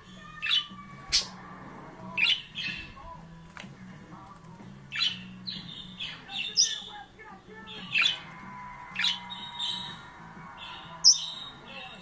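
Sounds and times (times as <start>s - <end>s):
budgerigar squawking: 4.9s - 7.0s.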